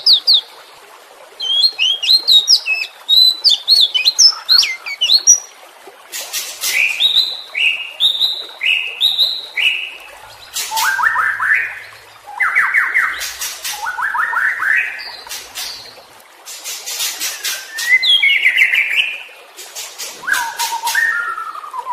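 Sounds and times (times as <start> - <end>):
bird cracks and falling whistles: 20.2 - 21.3.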